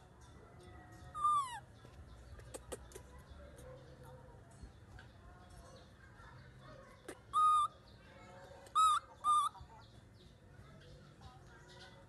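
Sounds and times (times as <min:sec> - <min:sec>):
baby macaque calls: 0:01.1 - 0:01.7, 0:07.1 - 0:07.8, 0:08.7 - 0:09.6.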